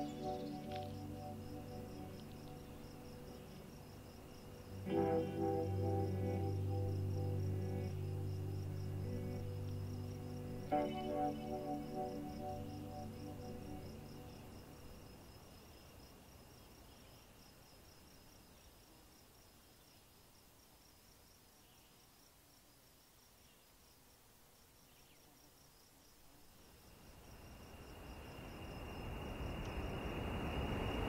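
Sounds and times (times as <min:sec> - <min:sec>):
high steady whine: 0:00.0 - 0:14.9
background music: 0:00.0 - 0:15.0
insect chirping: 0:00.0 - 0:31.0
low hiss: 0:00.0 - 0:31.0.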